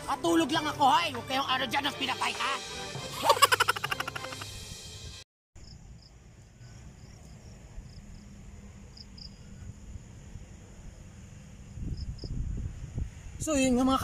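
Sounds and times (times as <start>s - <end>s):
music: 0.0s - 5.2s
crickets chirping: 5.6s - 13.5s.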